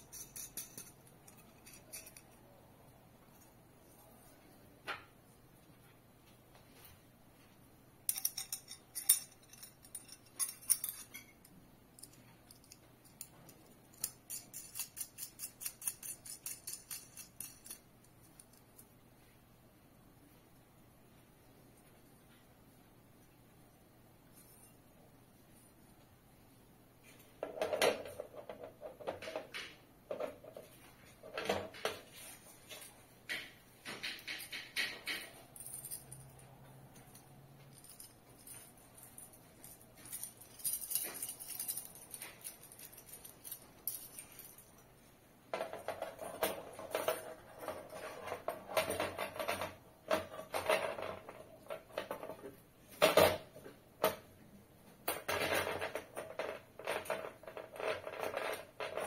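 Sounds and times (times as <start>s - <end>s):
metal parts clinking on plastic: 0.0s - 2.4s, 8.1s - 18.9s, 37.0s - 44.8s.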